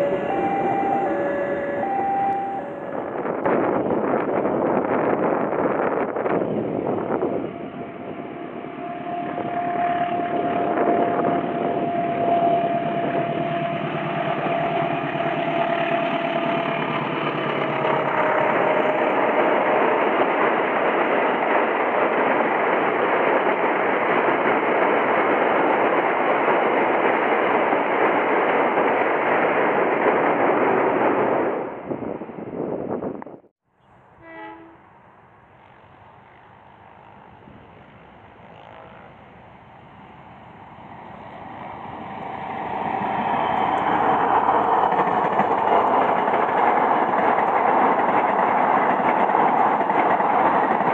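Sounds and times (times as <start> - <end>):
locomotive engine: 0.0 - 3.4, 7.4 - 21.4
long steady tone: 0.0 - 3.4
train wheels clattering on rails: 42.6 - 50.9.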